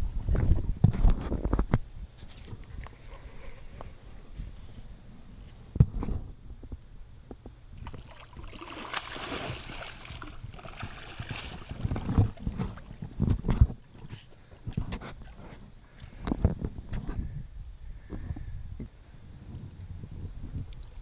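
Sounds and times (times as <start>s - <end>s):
fish splashing in water: 7.8s - 13.0s.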